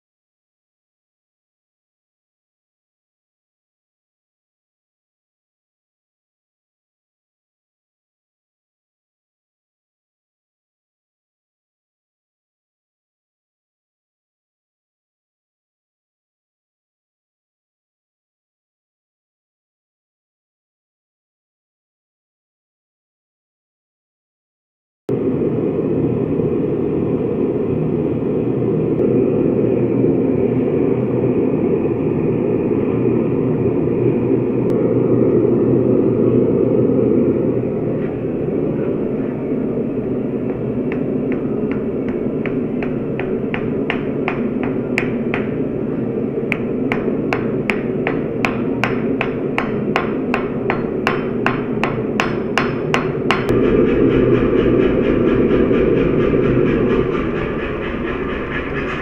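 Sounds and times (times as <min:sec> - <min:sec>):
hammer striking hot steel: 0:40.4 - 0:57.4.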